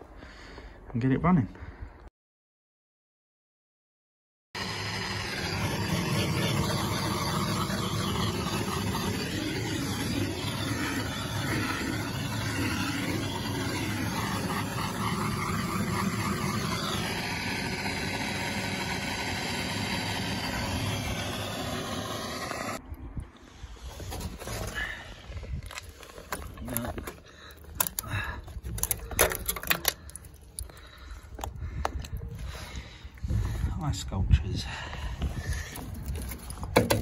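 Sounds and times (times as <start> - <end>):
blow lamp flame rushing: 4.6 - 22.8.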